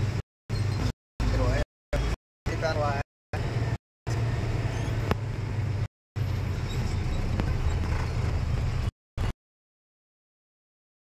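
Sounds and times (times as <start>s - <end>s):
truck engine rumbling: 0.0s - 9.3s
road noise: 0.0s - 9.4s.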